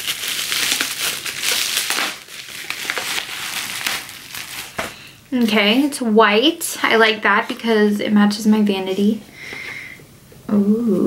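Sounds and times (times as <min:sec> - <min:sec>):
bubble wrap crinkling: 0:00.0 - 0:06.0.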